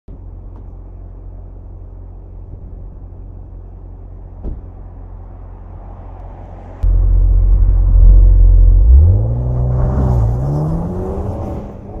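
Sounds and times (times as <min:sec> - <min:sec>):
car door shutting: 0:04.4 - 0:04.7
car engine idling: 0:06.8 - 0:09.1.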